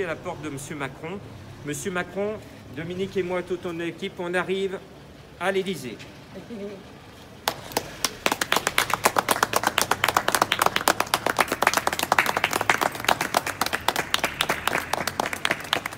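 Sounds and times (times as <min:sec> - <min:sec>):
people clapping: 0:07.4 - 0:15.9.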